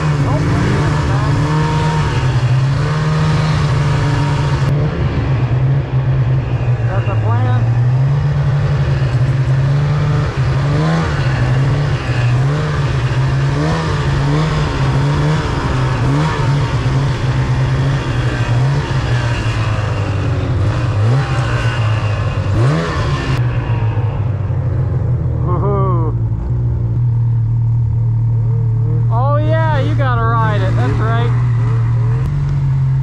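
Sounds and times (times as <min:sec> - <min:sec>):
snowmobile engine revving: 0:00.0 - 0:24.2, 0:28.3 - 0:33.0.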